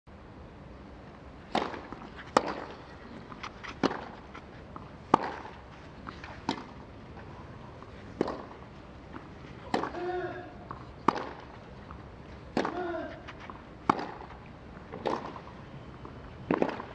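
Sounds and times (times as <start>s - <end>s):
tennis ball hit by racket: 1.5s - 5.6s, 6.2s - 6.8s, 8.1s - 15.4s, 16.5s - 16.9s.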